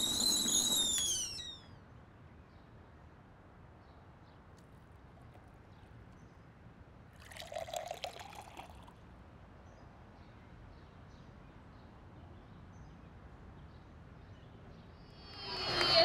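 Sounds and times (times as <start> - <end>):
coffee poured into a mug: 7.2 - 9.0.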